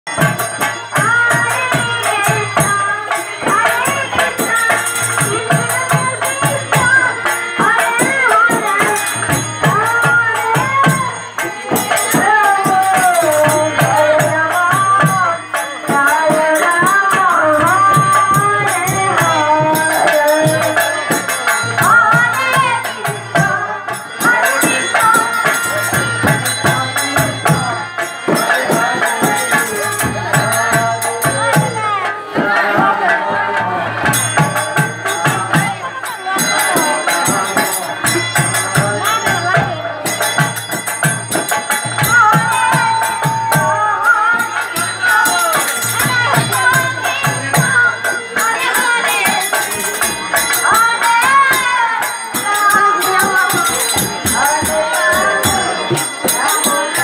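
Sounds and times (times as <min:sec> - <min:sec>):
ringing cymbals: 0:00.1 - 0:57.0.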